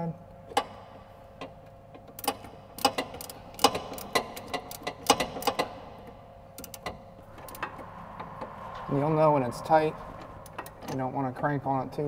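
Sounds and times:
ratchet clicking: 2.1 - 5.8, 6.6 - 7.7.

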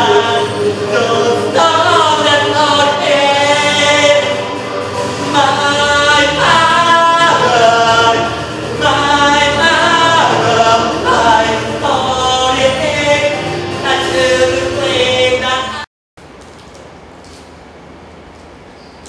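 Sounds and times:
person singing unaccompanied: 0.0 - 15.9.

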